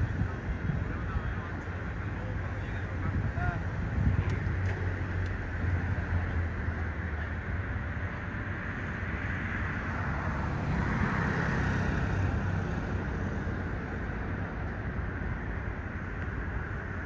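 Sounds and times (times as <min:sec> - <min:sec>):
distant road traffic hum: 0:00.0 - 0:17.0
vehicle passing: 0:08.6 - 0:14.2.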